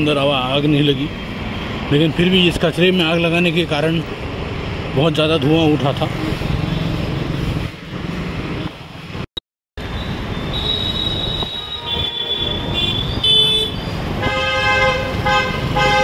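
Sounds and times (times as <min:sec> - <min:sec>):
city road traffic: 0:00.0 - 0:16.0
high vehicle horn: 0:10.6 - 0:16.0
low full vehicle horn blasts: 0:11.5 - 0:16.0.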